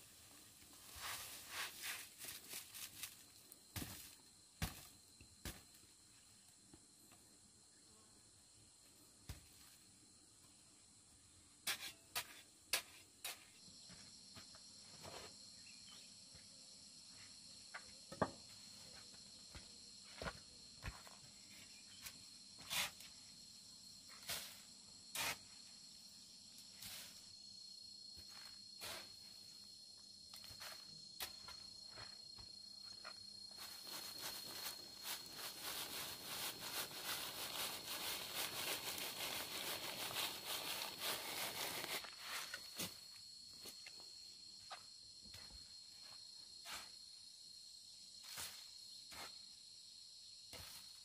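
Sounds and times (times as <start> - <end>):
soil rattling through a sieve: 0.6 - 3.2, 33.6 - 42.7
high insect buzz: 18.8 - 51.0.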